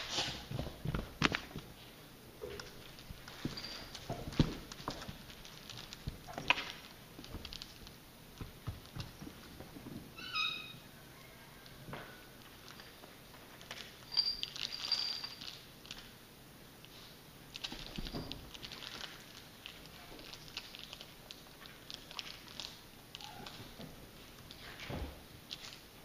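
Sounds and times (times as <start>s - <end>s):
short high squeak: 10.2s - 10.9s.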